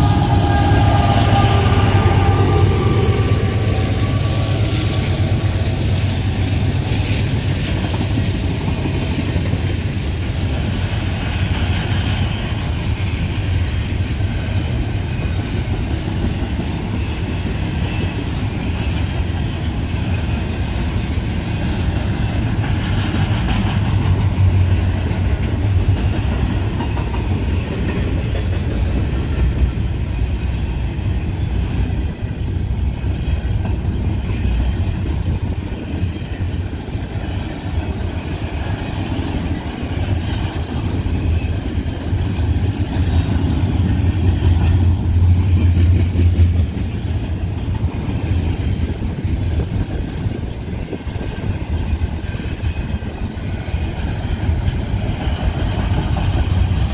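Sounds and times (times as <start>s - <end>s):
train wheels rumbling on rails: 0.0s - 56.9s
high squeal: 31.2s - 33.9s.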